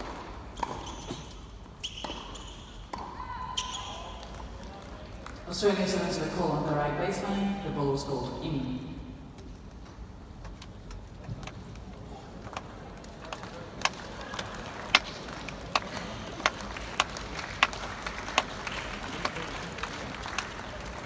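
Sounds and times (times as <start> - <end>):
crowd murmur: 10.8 - 21.0.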